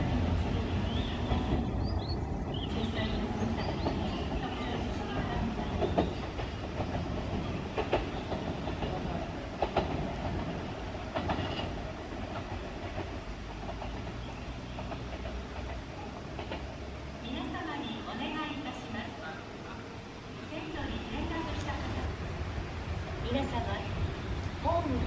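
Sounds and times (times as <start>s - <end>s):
wheels clicking over rail joints: 3.5s - 17.4s.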